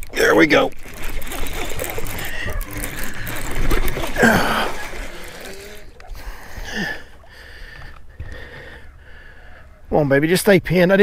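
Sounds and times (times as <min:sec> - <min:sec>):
fish splashing in water: 0:00.0 - 0:08.0.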